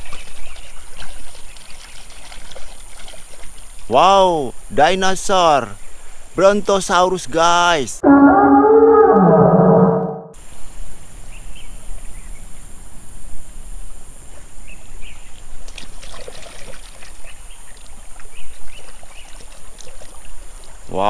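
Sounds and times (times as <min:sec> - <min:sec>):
river water trickling and splashing: 0:00.0 - 0:06.4, 0:14.5 - 0:21.0
loud pitched sound: 0:08.0 - 0:10.4.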